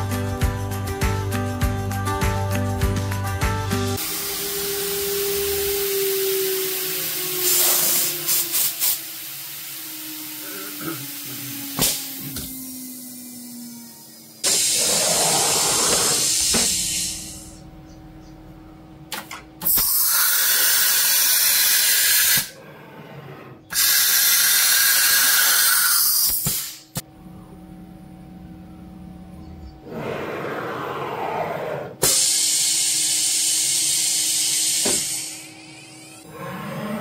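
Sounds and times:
compressed air hissing: 4.0 - 17.6, 19.6 - 22.6, 23.7 - 27.0, 32.0 - 36.2.

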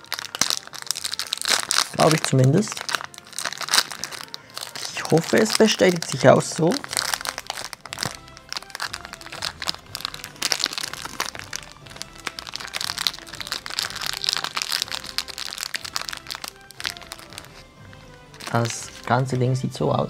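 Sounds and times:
snack wrapper crinkling: 0.0 - 19.1
background music: 0.0 - 20.0.

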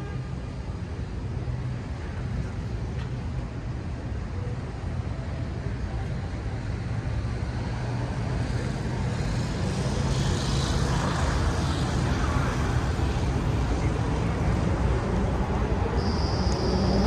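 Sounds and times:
traffic rumble: 0.0 - 17.0
vehicle passing with tyre hiss: 6.5 - 17.0.

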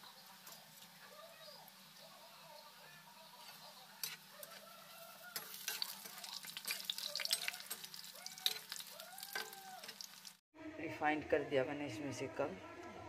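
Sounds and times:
balls deep-frying in hot oil: 0.0 - 10.4
slotted spoon stirring in oil: 3.4 - 10.4.

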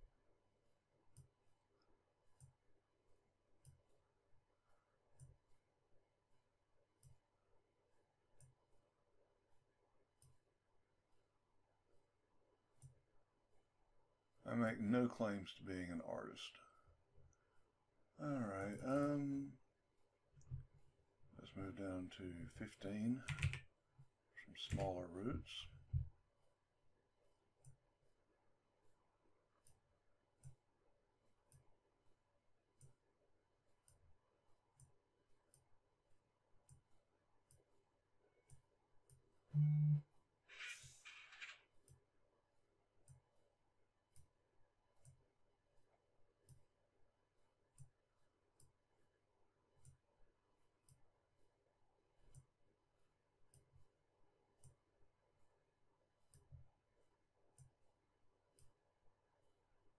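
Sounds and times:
computer mouse clicks: 23.2 - 23.7, 40.6 - 42.0.

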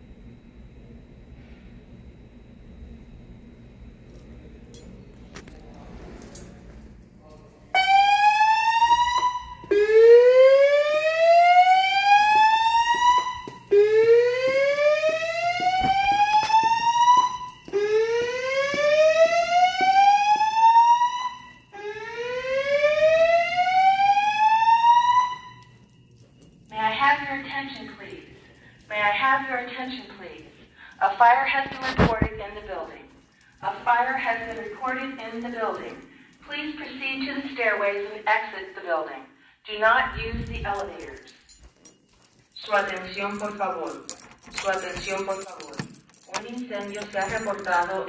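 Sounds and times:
fire alarm whoop tone: 7.7 - 26.4.

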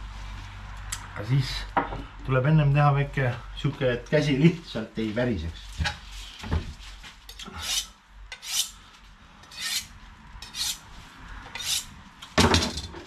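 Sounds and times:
knife scraping on sharpening rod: 7.3 - 8.8, 9.4 - 10.8, 11.5 - 11.9.

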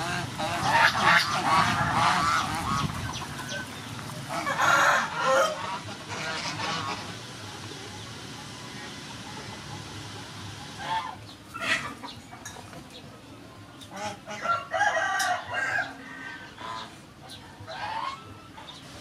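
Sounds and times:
fowl calls: 0.0 - 7.3, 10.7 - 12.2, 13.9 - 17.0, 17.6 - 18.8
geese honking: 0.0 - 7.4, 10.6 - 12.3, 13.8 - 19.0
rooster crowing: 4.4 - 5.6, 14.4 - 16.3.

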